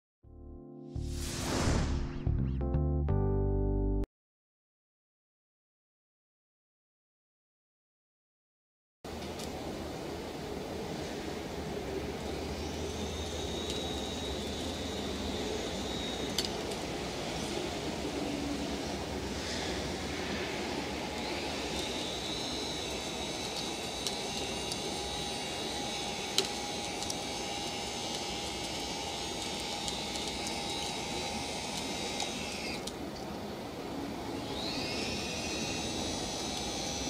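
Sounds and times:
electric motors whining: 10.4s - 37.0s.

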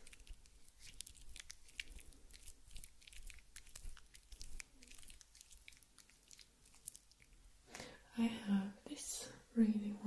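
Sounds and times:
shaving foam crackling: 0.0s - 7.3s.

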